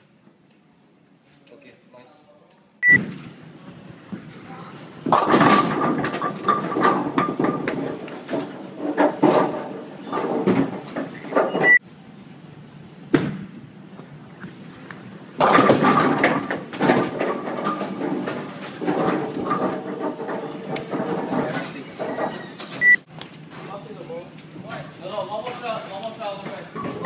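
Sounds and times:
ball rolling down wooden lane: 3.0s - 11.7s, 15.4s - 22.8s
bowling balls clattering: 4.2s - 11.8s, 15.3s - 22.8s, 26.3s - 27.0s.

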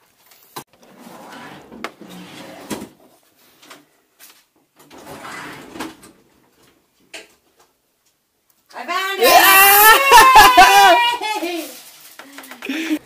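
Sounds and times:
drawers and cabinet doors shutting: 0.8s - 3.0s, 4.8s - 7.3s.

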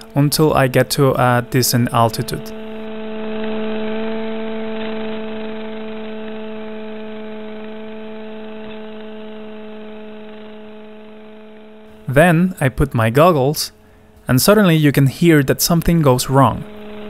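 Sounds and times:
electric model airplane motor hum: 0.0s - 12.1s, 15.8s - 17.0s.

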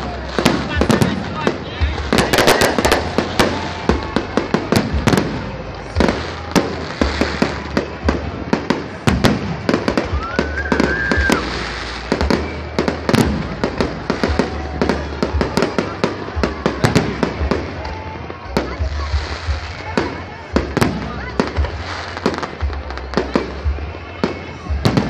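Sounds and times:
fireworks bangs and crackles: 0.0s - 25.0s
rising firework whistle: 2.2s - 18.2s.

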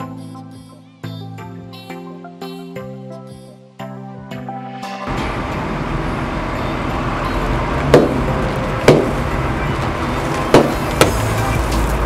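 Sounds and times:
road roller engine running: 5.1s - 12.0s
packets bursting with sharp pops: 7.8s - 12.0s.

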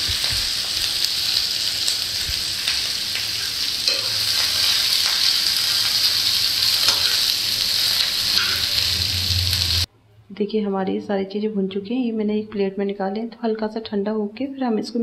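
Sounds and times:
food sizzling in a frying pan: 0.0s - 9.9s
metal spoon scraping a pan: 2.7s - 9.8s.

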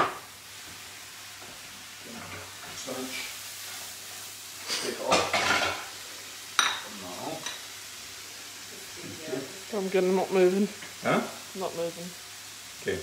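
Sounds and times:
spinach sizzling in a frying pan: 0.0s - 13.0s
pan and utensil clatter: 4.6s - 6.0s.

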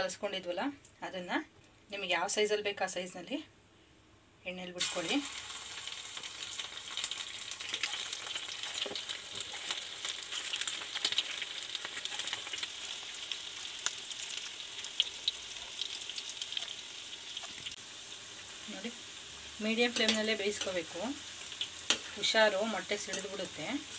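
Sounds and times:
batter deep-frying in hot oil: 4.7s - 23.9s
oil crackles and pops: 4.8s - 22.2s.

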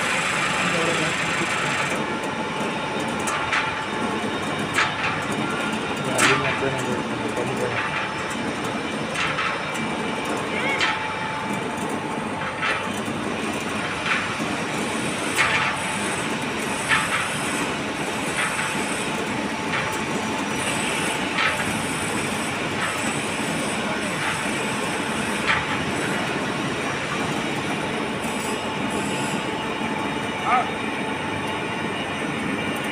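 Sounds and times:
hydraulic press running: 0.0s - 32.9s.

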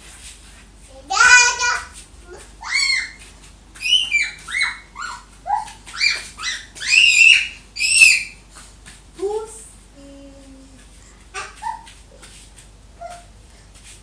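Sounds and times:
toddler squealing: 2.6s - 3.2s, 3.8s - 8.4s, 11.4s - 11.9s.

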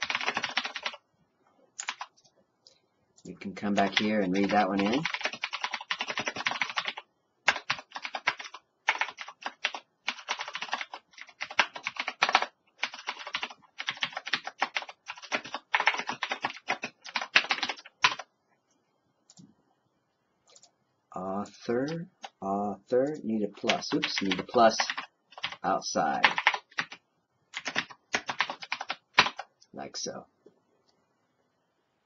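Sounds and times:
typing on computer keyboard: 0.0s - 1.0s, 1.8s - 2.2s, 3.2s - 18.3s, 23.7s - 25.6s, 26.2s - 29.5s.

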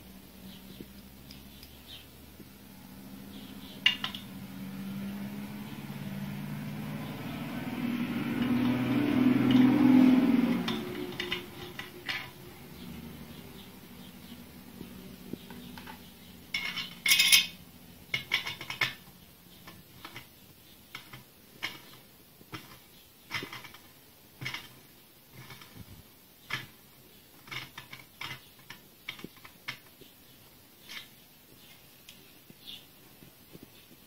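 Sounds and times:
metal parts clinking: 10.6s - 12.4s, 15.7s - 19.0s.

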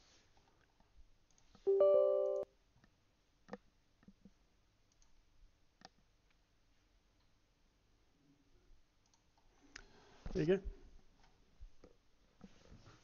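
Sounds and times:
computer alert chord: 1.7s - 2.5s.

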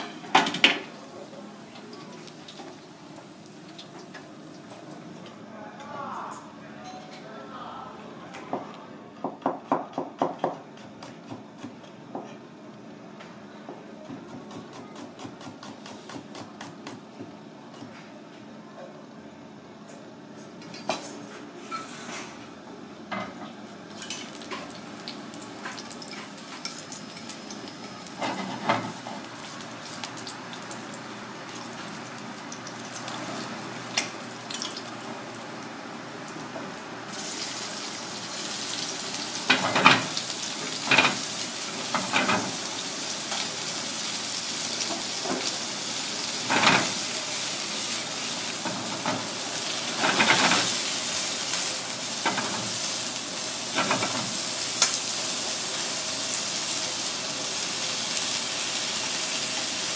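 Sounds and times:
garlic sizzling in oil: 24.0s - 59.9s.

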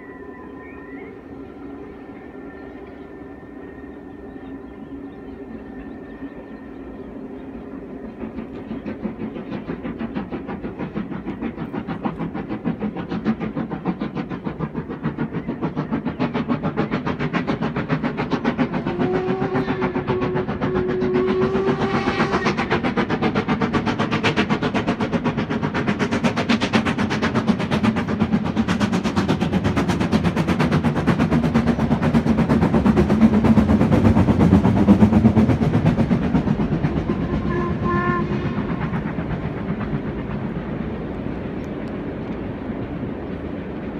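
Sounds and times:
steam whistle: 0.0s - 4.9s, 18.9s - 22.8s, 37.1s - 38.8s
steam locomotive chuffing: 0.0s - 43.9s.

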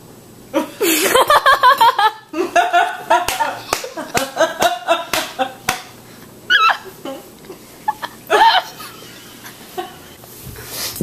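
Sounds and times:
group laughing: 0.6s - 5.9s, 6.5s - 10.2s
sharp slaps: 3.2s - 6.0s.

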